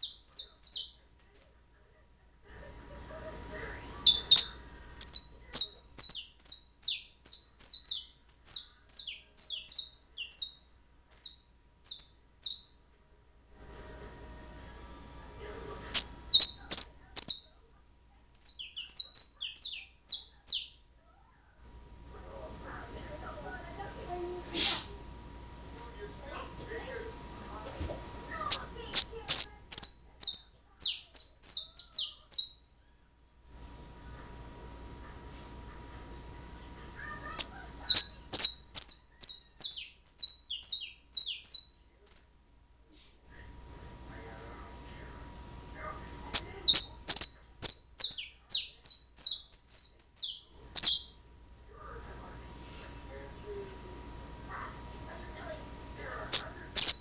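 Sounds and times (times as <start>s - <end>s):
canary chirping: 0.0s - 1.7s, 3.5s - 12.8s, 15.6s - 17.6s, 18.3s - 20.9s, 28.4s - 32.8s, 37.0s - 42.5s, 46.3s - 51.2s, 56.0s - 57.0s.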